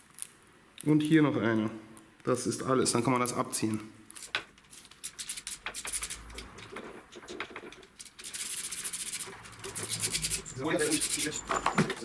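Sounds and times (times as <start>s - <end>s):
plastic clicks and scrapes: 4.2s - 11.4s.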